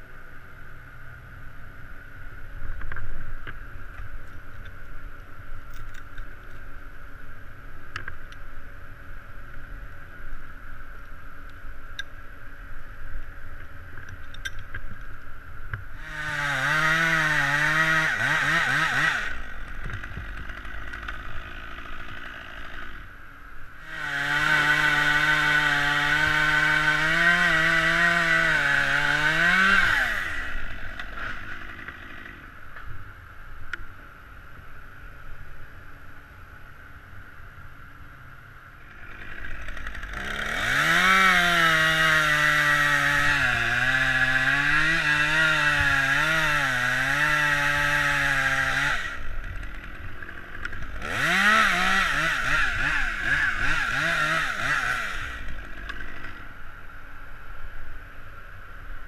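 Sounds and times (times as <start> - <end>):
chainsaw revving and cutting: 16.0 - 23.1, 23.8 - 32.5, 38.9 - 56.6.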